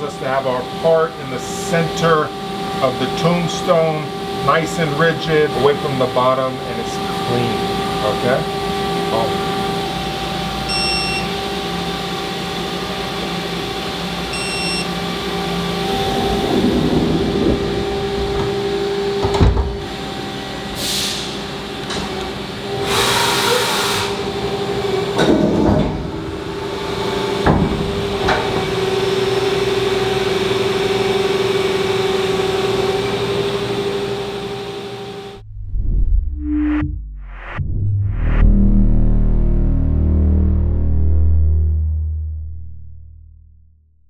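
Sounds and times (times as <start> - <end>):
machine hum: 0.0 - 44.0
pallet moving whine: 9.1 - 20.9, 24.2 - 31.3, 35.0 - 43.8
air hiss bursts: 20.8 - 21.4.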